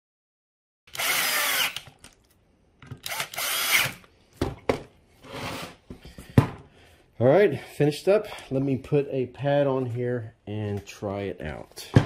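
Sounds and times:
cordless drill whirring: 0.9 - 2.0, 3.0 - 4.1.

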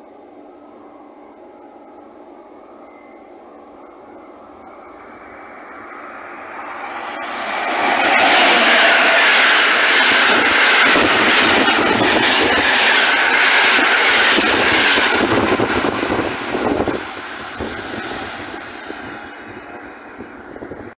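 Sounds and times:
train wheels clicking over rail joints: 6.3 - 20.3.

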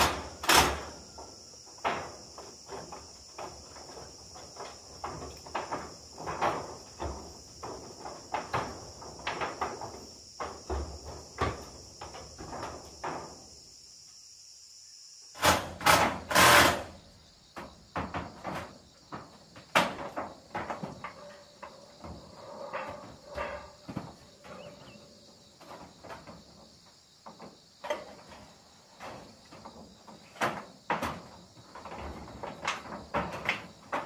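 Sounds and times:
metal roofing knocks and rattles: 0.0 - 13.6, 15.4 - 34.0
high insect drone: 0.0 - 34.0.

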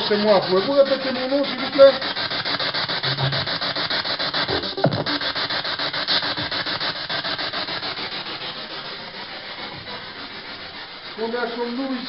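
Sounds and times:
pulsing radio static: 4.5 - 5.2.

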